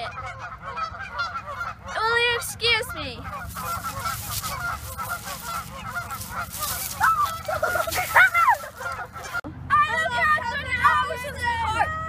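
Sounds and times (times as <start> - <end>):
geese honking: 0.0 - 9.4.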